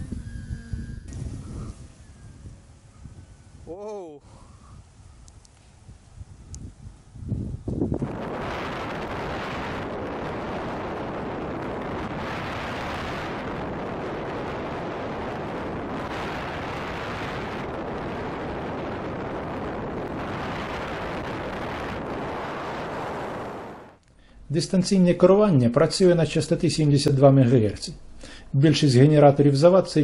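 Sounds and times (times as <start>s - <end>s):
wind rushing over microphone: 0.0s - 24.0s.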